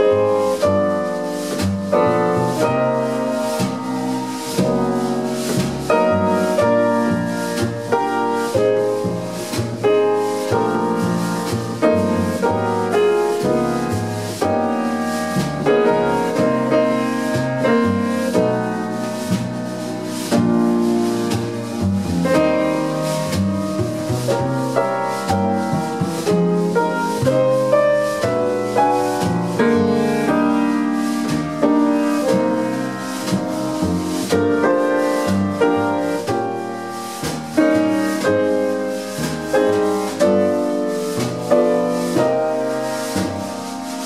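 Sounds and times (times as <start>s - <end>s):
double bass: 0.0s - 44.0s
drums: 0.0s - 44.0s
grand piano: 0.0s - 44.0s.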